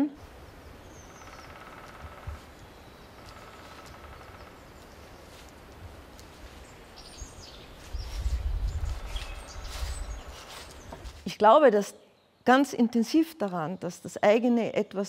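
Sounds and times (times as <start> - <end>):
low outdoor background noise: 0.0 - 15.0.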